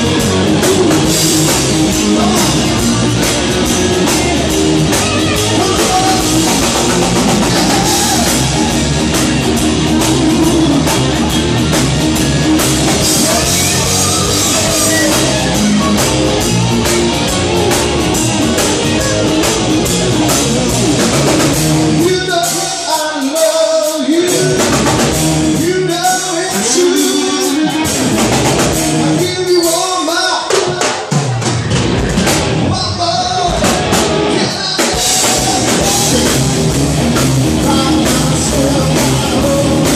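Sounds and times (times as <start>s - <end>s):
man singing: 0.0s - 11.8s, 12.8s - 16.2s, 21.9s - 28.1s, 29.0s - 31.1s, 32.7s - 39.9s
electric guitars: 0.0s - 29.7s, 30.4s - 39.9s
bass guitar: 0.0s - 39.9s
drum kit: 0.0s - 39.9s.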